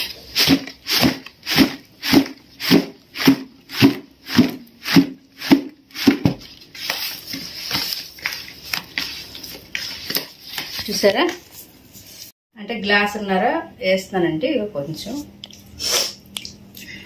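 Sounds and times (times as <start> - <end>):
hands mixing wet mango pieces: 0.0 - 12.2.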